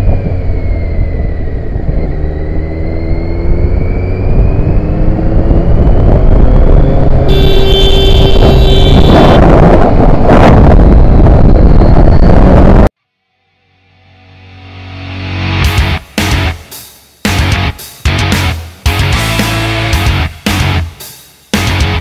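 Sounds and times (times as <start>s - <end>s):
motorcycle engine accelerating: 0.0s - 12.9s
music: 13.0s - 22.0s.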